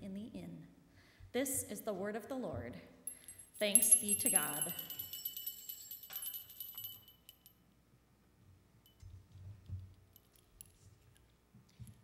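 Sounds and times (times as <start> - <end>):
small bells ringing: 3.1 - 7.6.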